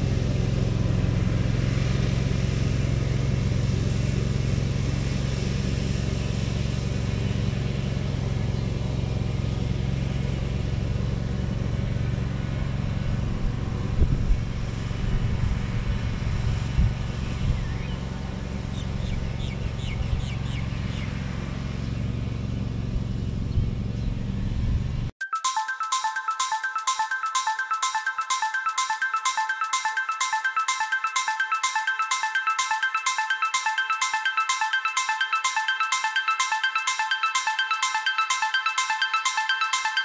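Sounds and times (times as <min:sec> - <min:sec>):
distant mower engine drone: 0:00.0 - 0:25.0
music: 0:25.2 - 0:40.0.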